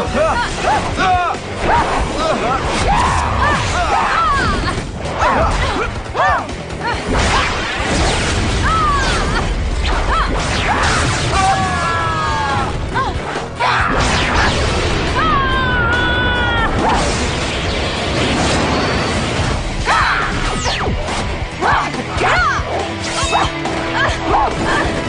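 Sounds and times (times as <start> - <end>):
action soundtrack music: 0.0 - 25.0.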